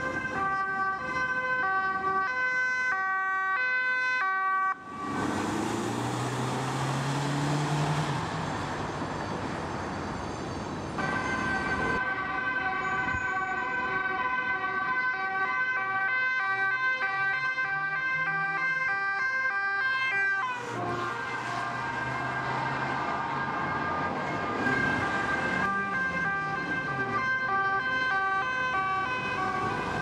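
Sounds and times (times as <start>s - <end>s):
police siren: 0.0s - 30.0s
street traffic: 0.0s - 30.0s.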